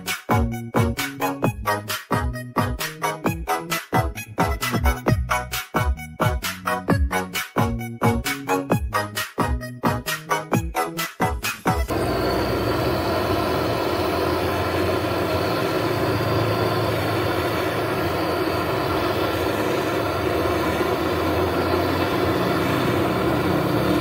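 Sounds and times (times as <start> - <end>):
gas torch flame hissing: 11.9 - 24.0.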